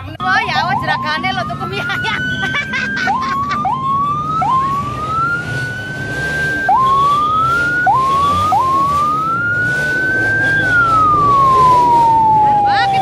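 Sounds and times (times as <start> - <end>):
electronic siren whooping: 0.2 - 13.0.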